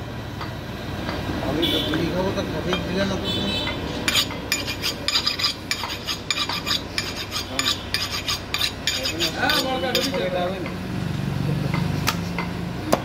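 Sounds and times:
knife scraping on steel: 0:04.0 - 0:10.4.

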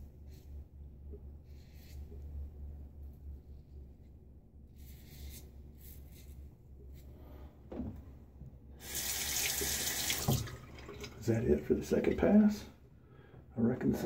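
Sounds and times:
tap water running into sink: 0:08.8 - 0:11.3.

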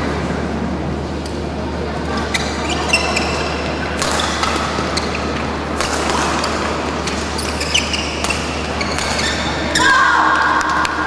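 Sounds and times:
sports hall hum: 0:00.0 - 0:11.0
shoe squeaking on court: 0:02.1 - 0:09.9
rackets hitting shuttlecock: 0:03.6 - 0:09.8.

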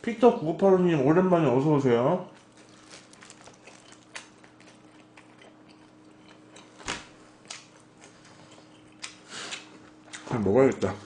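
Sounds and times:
low steady hum: 0:00.0 - 0:11.0
person chewing food: 0:02.3 - 0:10.3.

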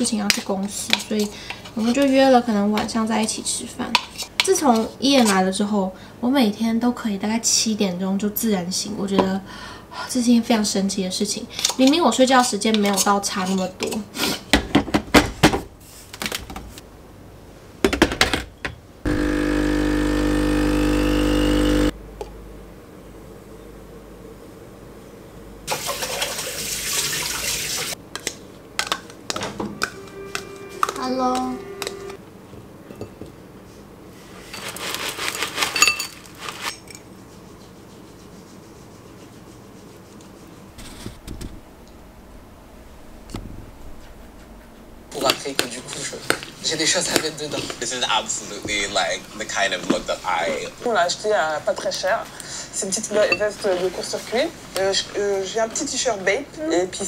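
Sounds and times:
espresso machine pump buzzing: 0:19.1 - 0:22.0
foil bag crackling: 0:34.6 - 0:36.7.

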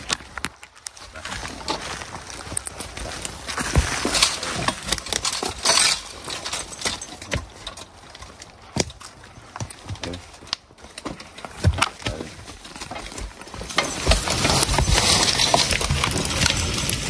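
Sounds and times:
rustling rush through brush: 0:00.0 - 0:17.0
hooves in snow: 0:11.5 - 0:17.0.

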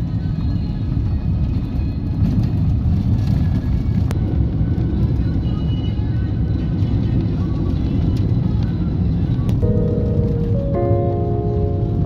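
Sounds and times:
car driving on dirt road: 0:00.0 - 0:12.0.

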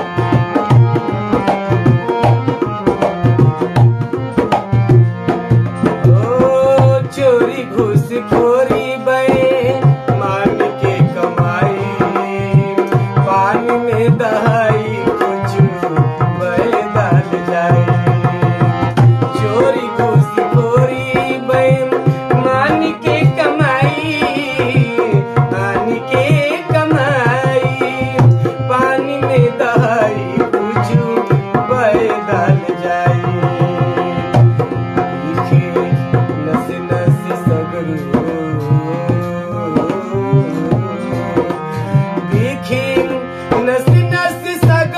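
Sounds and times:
barrel drum rhythm: 0:00.0 - 0:44.9
harmonium melody: 0:00.0 - 0:44.9.

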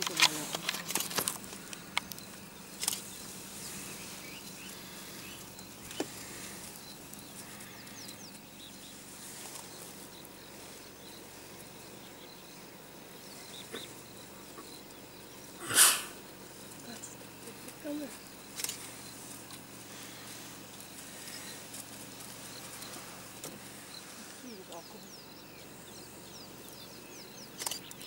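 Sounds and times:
insects humming: 0:00.0 - 0:28.0
loud sharp noise: 0:15.6 - 0:16.2.

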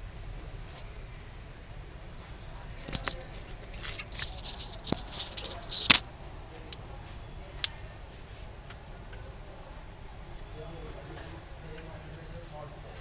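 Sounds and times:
screwdriver clicks and scrapes: 0:03.8 - 0:06.0.

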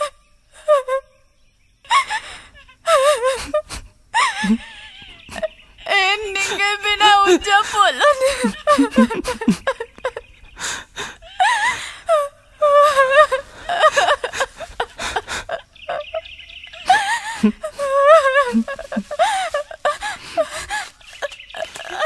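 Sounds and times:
person sobbing: 0:00.0 - 0:01.1, 0:01.9 - 0:22.0
person wailing: 0:05.9 - 0:09.7, 0:16.9 - 0:20.0.

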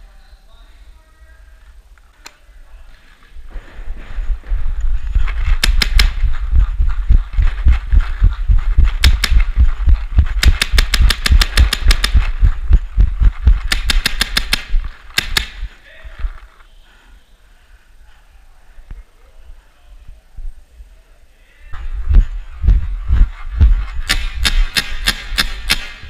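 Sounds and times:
low thuds and rumble: 0:03.4 - 0:13.7, 0:21.8 - 0:24.1
paintball markers firing: 0:05.4 - 0:06.4, 0:08.8 - 0:12.4, 0:13.5 - 0:15.8, 0:24.0 - 0:26.0.

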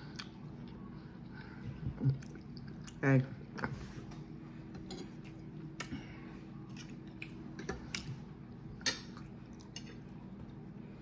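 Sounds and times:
steady low hum: 0:00.0 - 0:11.0
chewing: 0:06.6 - 0:08.2.

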